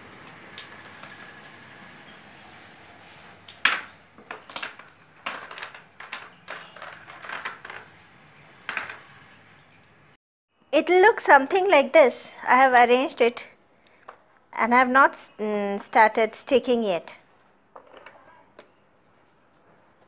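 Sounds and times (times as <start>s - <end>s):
wooden pieces clicking and clattering: 3.5s - 8.0s.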